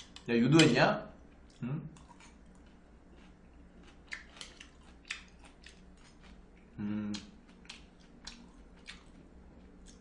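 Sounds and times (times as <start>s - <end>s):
person humming: 6.8s - 7.3s.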